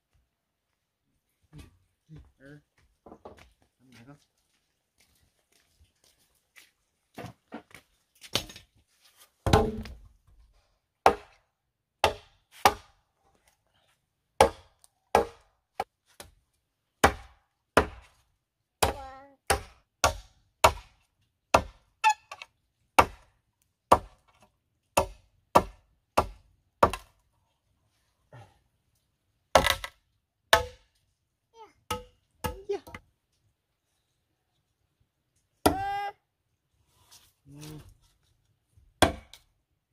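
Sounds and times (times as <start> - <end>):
machete chopping wood: 9.4 - 10.0, 11.0 - 11.4, 12.0 - 13.0, 14.4 - 16.4, 17.0 - 18.2, 18.8 - 23.3, 23.9 - 24.4, 25.0 - 27.2, 29.5 - 30.9, 31.9 - 33.0, 39.0 - 39.5.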